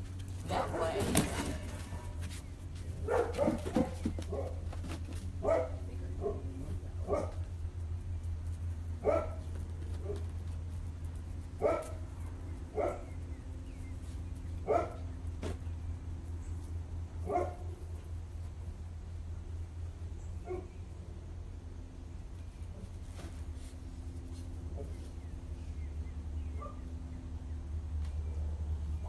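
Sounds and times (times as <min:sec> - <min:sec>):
dog barking: 0:03.0 - 0:04.6, 0:05.4 - 0:07.4, 0:09.0 - 0:09.4, 0:11.6 - 0:12.0, 0:12.8 - 0:13.1, 0:14.6 - 0:15.0, 0:17.2 - 0:17.6, 0:20.4 - 0:20.7, 0:26.6 - 0:26.9.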